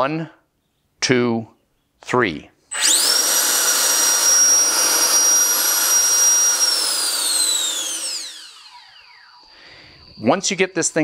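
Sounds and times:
electric fan whining: 2.7 - 11.0.

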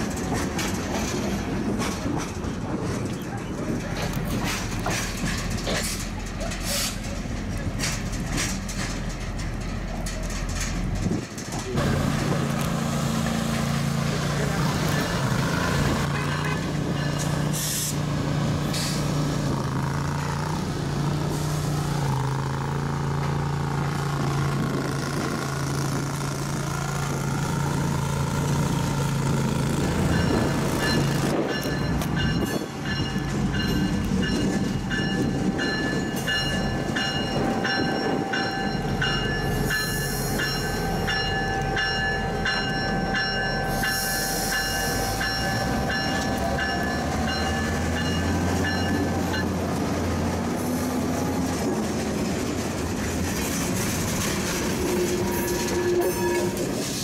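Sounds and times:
diesel locomotive engine: 0.0 - 57.0
locomotive bell ringing: 14.5 - 17.6, 29.6 - 50.0, 54.7 - 56.8.

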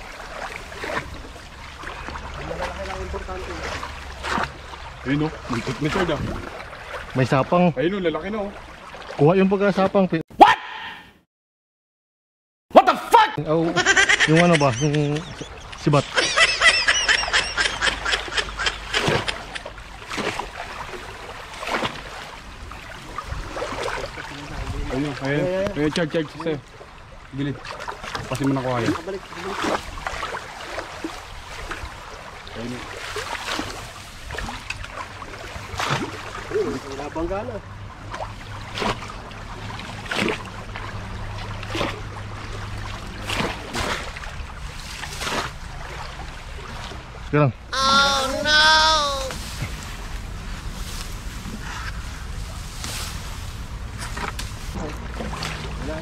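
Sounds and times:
splashing in water: 0.0 - 7.4, 14.3 - 25.2, 27.6 - 36.9, 38.0 - 47.2.

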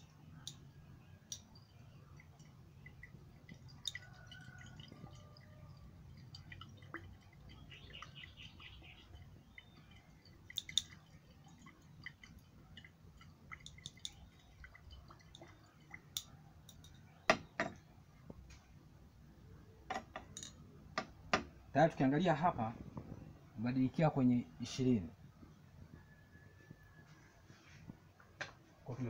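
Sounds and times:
glassware clinks and ticks: 1.3 - 5.5, 13.6 - 14.2.

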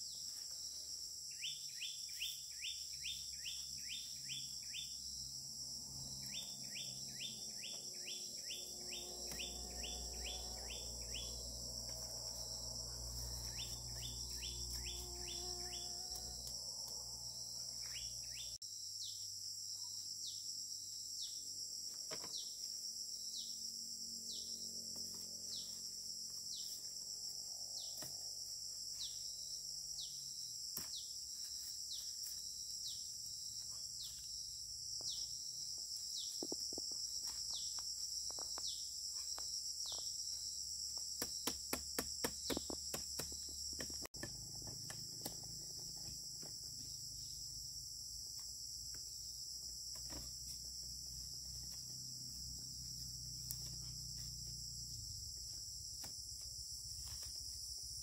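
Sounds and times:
insects chirring: 0.0 - 58.0.

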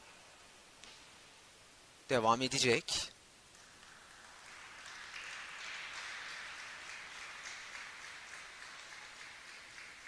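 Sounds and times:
spectators applauding: 3.5 - 10.0.

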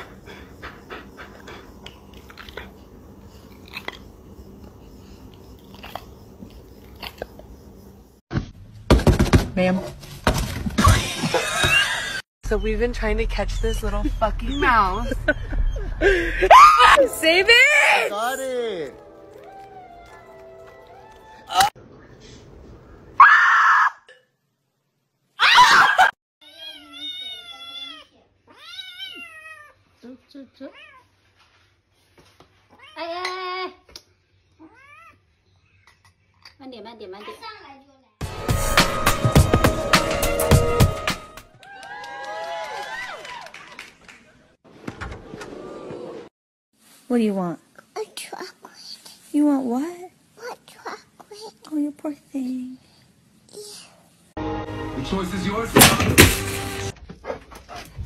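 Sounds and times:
kitten crying: 26.4 - 29.7.

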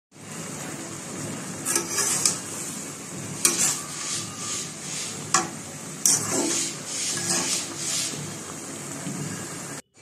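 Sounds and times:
spinach sizzling in oil: 0.2 - 9.8
metal spatula scraping pan: 1.6 - 8.5.

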